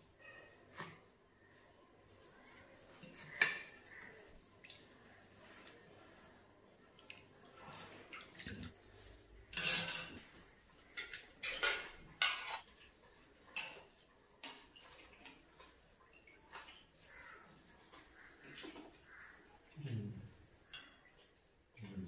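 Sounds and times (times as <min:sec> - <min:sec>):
metal spoons clinking on plates: 0:09.4 - 0:12.7.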